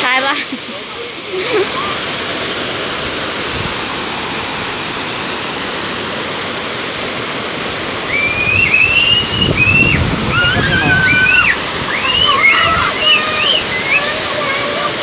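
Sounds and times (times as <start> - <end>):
waterfall pouring into a pool: 0.0 - 15.0
high-pitched call: 8.1 - 14.6.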